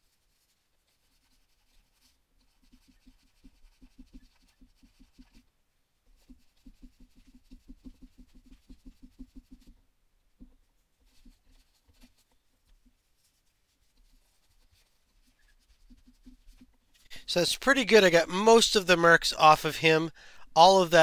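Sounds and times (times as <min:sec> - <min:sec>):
scrubbing on plastic toy: 0:00.0 - 0:05.4, 0:10.6 - 0:17.1.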